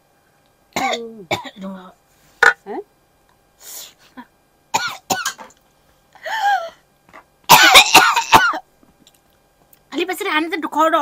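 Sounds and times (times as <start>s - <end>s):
woman coughing and clearing throat: 0.8s - 1.7s, 4.7s - 5.5s, 7.5s - 8.7s.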